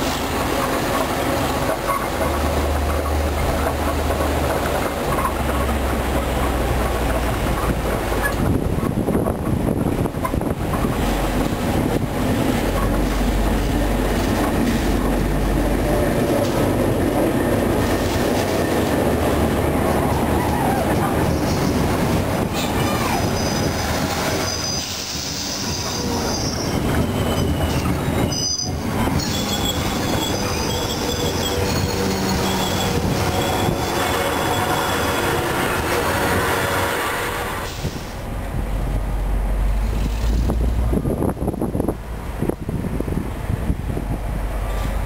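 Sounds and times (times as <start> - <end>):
train wheel squeal: 0.0 - 3.2, 20.2 - 38.1
diesel locomotive engine rumble: 0.0 - 45.0
train cars rolling on rails: 0.0 - 45.0.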